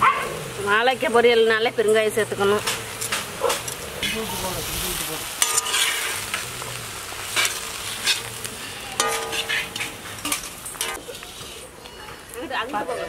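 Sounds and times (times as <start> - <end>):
food sizzling in oil: 0.0 - 13.0
metal ladles scraping pan: 1.9 - 11.7.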